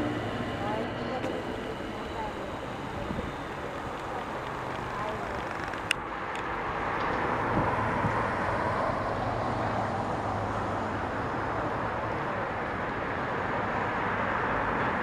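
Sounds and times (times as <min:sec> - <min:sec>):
low hum: 0:00.0 - 0:06.0
car traffic: 0:00.0 - 0:15.0
tram running along road: 0:00.0 - 0:15.0.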